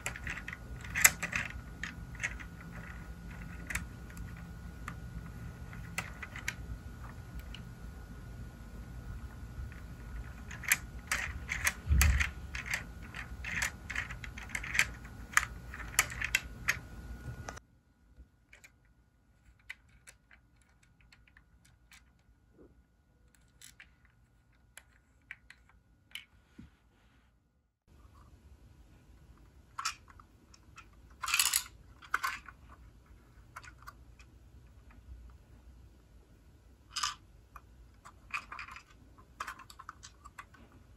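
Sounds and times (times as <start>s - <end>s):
plastic toy parts clicking and rattling: 0.0s - 7.6s, 9.1s - 16.9s, 18.4s - 22.4s, 23.2s - 26.3s, 29.4s - 35.0s, 36.8s - 40.9s.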